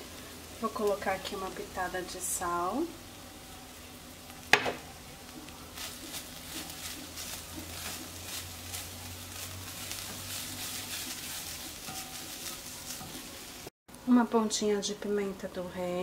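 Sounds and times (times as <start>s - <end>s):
meat sizzling in a pot: 0.0s - 16.0s
spatula scraping pot: 5.8s - 13.5s.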